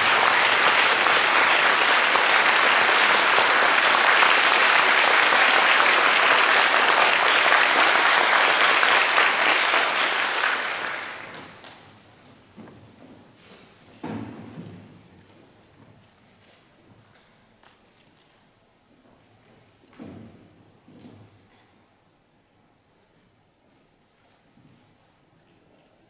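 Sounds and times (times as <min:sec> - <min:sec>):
audience applause: 0:00.0 - 0:11.8.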